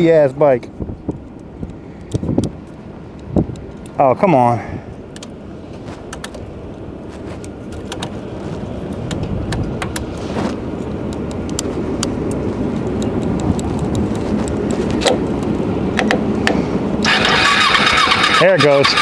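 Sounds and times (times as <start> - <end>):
motorcycle starter cranking: 17.0 - 19.0.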